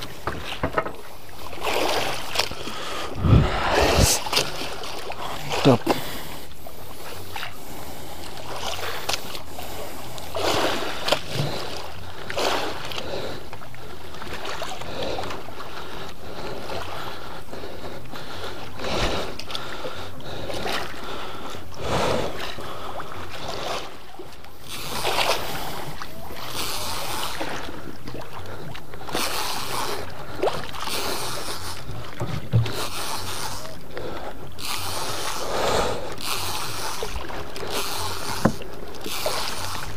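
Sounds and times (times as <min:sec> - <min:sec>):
water slapping against boat hull: 0:00.0 - 0:06.2, 0:29.0 - 0:34.1, 0:36.2 - 0:39.9
wind on microphone: 0:03.1 - 0:04.6.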